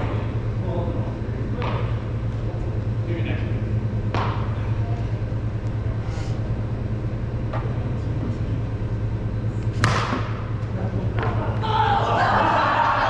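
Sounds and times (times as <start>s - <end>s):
steady low hum: 0.0s - 13.0s
wiffle ball struck: 1.6s - 2.0s, 4.1s - 4.6s, 9.7s - 10.5s.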